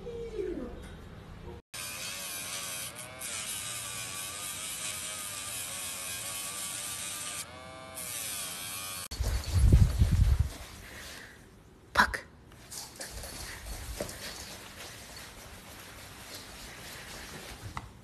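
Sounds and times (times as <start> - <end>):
pet nail grinder whirring: 1.8 - 9.1.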